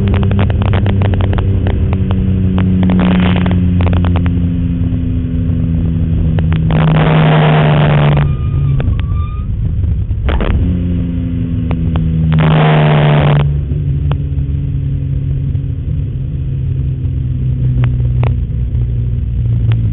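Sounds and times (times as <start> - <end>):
race car engine from inside cabin: 0.0 - 19.9
loud rushing surges: 2.6 - 4.3, 6.1 - 8.9, 12.3 - 13.5.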